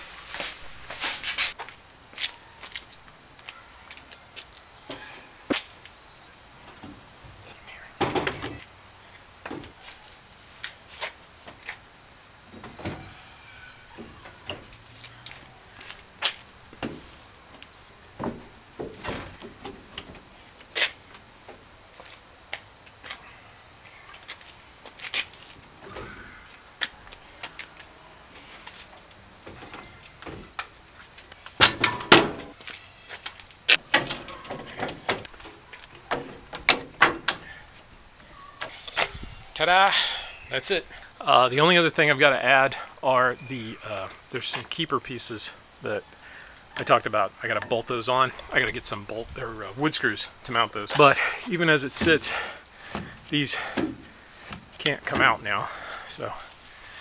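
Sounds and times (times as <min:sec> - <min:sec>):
wooden pieces knocking in truck bed: 0:31.6 - 0:32.5.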